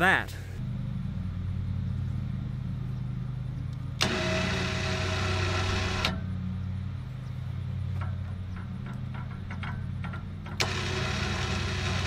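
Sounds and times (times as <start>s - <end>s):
vehicle engine idling: 0.1s - 12.0s
electric winch motor running: 0.6s - 12.0s.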